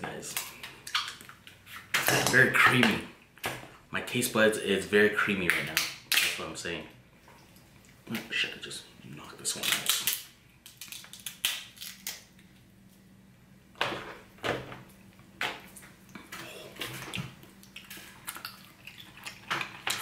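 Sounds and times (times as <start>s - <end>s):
crab shell cracking: 9.6s - 12.6s.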